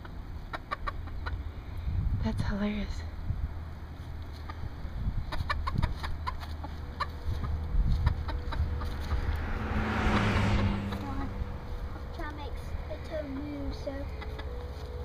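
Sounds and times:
chickens clucking: 0.0 - 1.6, 4.2 - 9.0, 13.3 - 14.9
rushing noise: 8.1 - 12.2.

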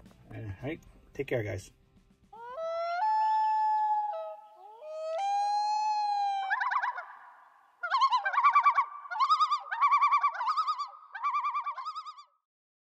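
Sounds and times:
loon tremolo calls: 2.4 - 12.2
loon wailing: 2.4 - 12.2.

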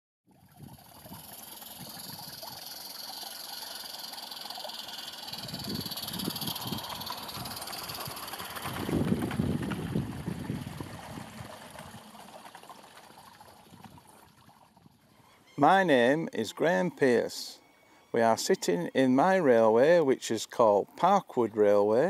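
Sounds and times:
steady hiss: 0.8 - 8.7
model train rumbling on track: 1.1 - 13.4.

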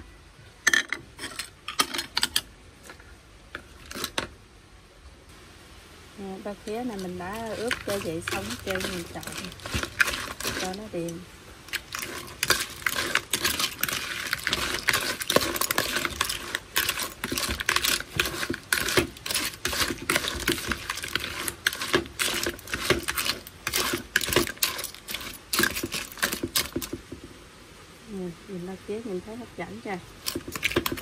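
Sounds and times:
spoon stirring crab claws in bowl: 3.6 - 4.3, 6.7 - 27.3, 30.0 - 31.0.

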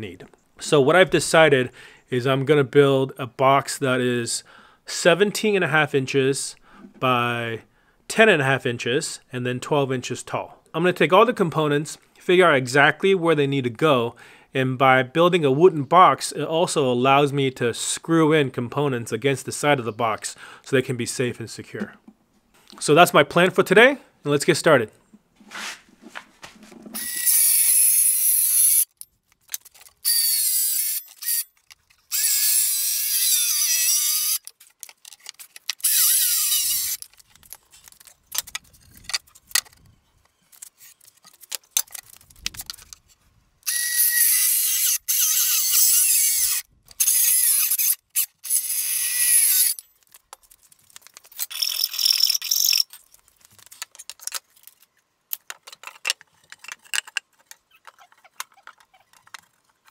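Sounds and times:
circular saw cutting wood: 27.0 - 28.9, 30.1 - 31.4, 32.1 - 34.4, 35.8 - 37.0, 43.7 - 49.8
handling clicks and knocks: 52.9 - 59.9.

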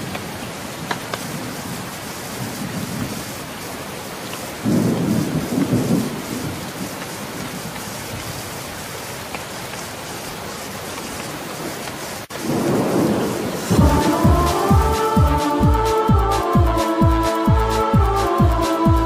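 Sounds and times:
steady rain: 0.0 - 19.0
thunder rolling: 4.6 - 6.8, 12.4 - 19.0.

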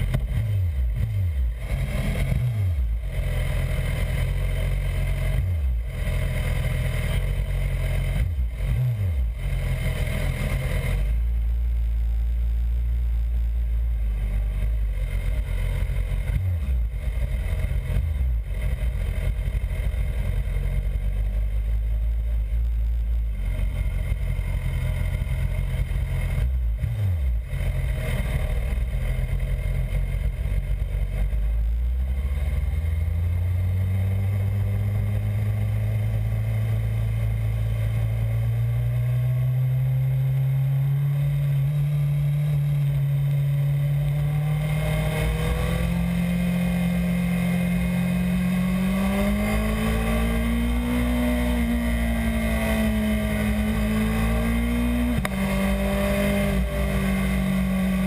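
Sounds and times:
motorcycle engine idling and revving: 0.0 - 58.0.

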